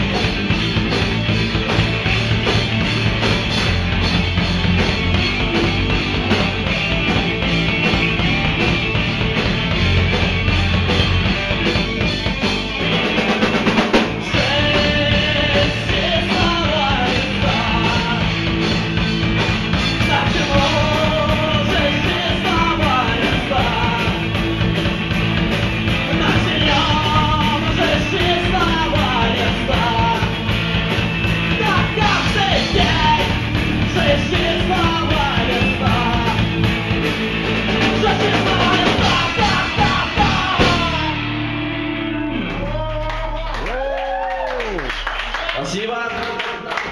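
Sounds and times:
drum fill: 0:00.0 - 0:41.6
rock band playing: 0:00.0 - 0:46.9
man singing: 0:14.2 - 0:18.7, 0:19.8 - 0:24.4, 0:25.9 - 0:30.5, 0:31.5 - 0:36.7, 0:37.8 - 0:41.4.

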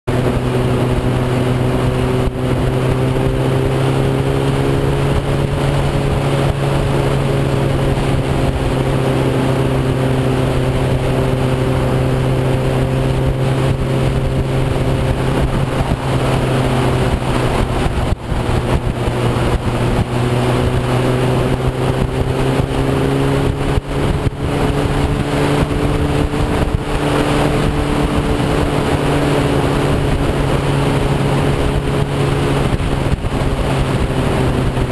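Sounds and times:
motorcycle engine cruising: 0:00.1 - 0:34.9
wind noise on microphone: 0:00.1 - 0:34.9.

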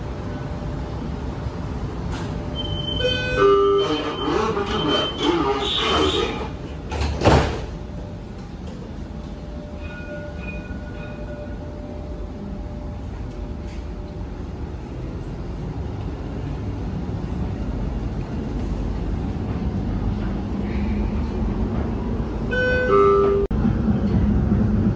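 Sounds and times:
tram rumbling: 0:00.0 - 0:24.9.

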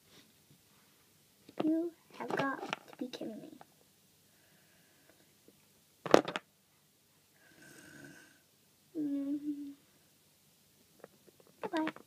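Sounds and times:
person imitating snoring: 0:07.5 - 0:08.4.

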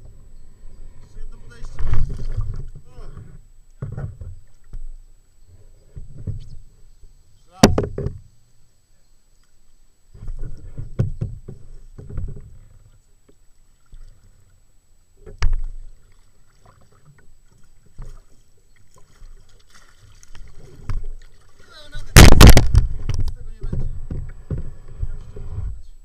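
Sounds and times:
paddle strokes in water: 0:01.4 - 0:04.7, 0:10.2 - 0:25.9
sharp knock: 0:22.2 - 0:23.2.

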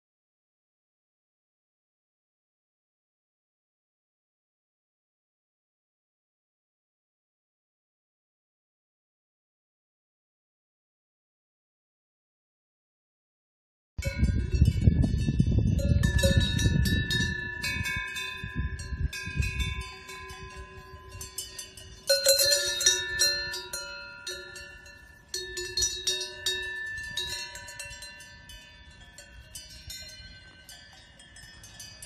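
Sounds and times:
cowbells clanking and ringing: 0:14.0 - 0:32.0.

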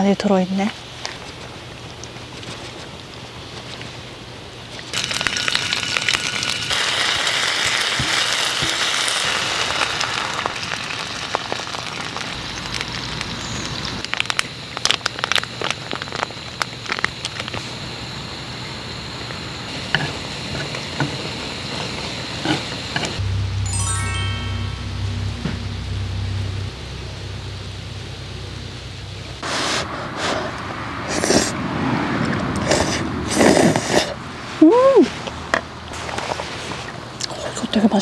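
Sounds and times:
food sizzling on a griddle: 0:04.9 - 0:14.0.

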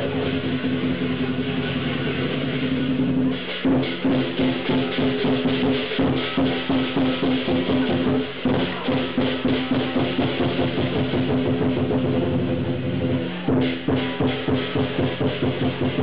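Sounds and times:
big drum beaten fast: 0:00.0 - 0:16.0
cymbals clashing: 0:00.0 - 0:16.0.

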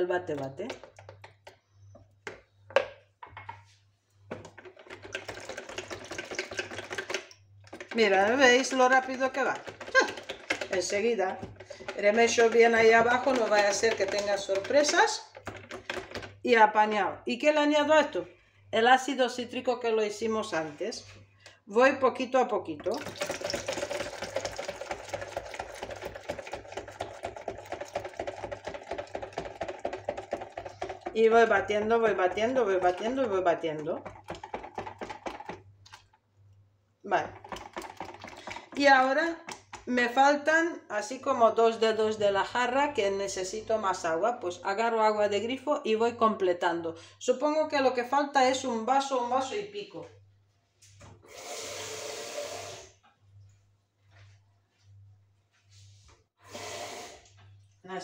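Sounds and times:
whisk rattling against plastic jug: 0:00.0 - 0:03.7, 0:04.3 - 0:16.5, 0:22.7 - 0:36.2, 0:37.2 - 0:39.9
liquid pouring: 0:04.8 - 0:07.2, 0:22.8 - 0:31.2, 0:37.4 - 0:38.8.

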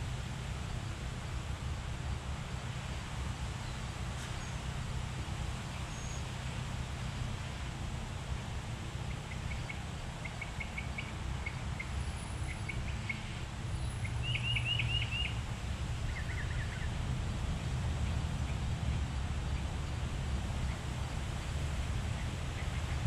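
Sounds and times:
wind rumbling on microphone: 0:15.2 - 0:23.0.

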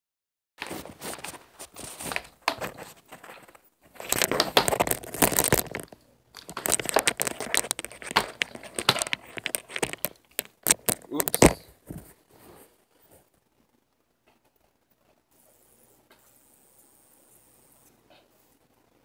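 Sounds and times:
plastic case crinkling and clicking: 0:00.6 - 0:12.2.

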